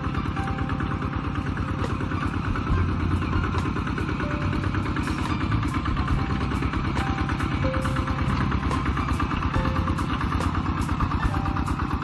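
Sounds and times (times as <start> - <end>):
diesel tractor engine running: 0.0 - 12.0.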